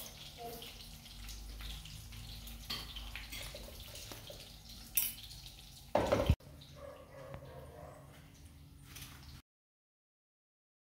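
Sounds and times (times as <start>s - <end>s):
kitchen handling noises: 6.0s - 6.4s.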